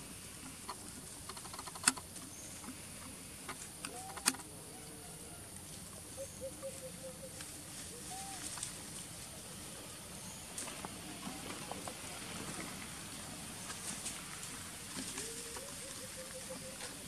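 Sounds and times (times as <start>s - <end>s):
sharp clicks: 0.7s - 2.1s, 3.5s - 4.5s
monkeys rustling in dry leaves: 5.6s - 17.0s.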